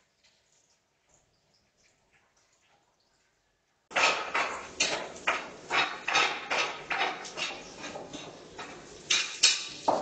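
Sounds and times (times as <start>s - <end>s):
kitchen utensil clattering: 3.9s - 10.0s.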